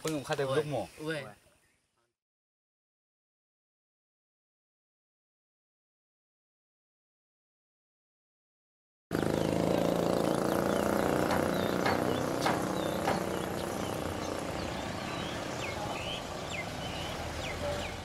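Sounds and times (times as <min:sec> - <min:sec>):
engine running: 0:09.1 - 0:18.0.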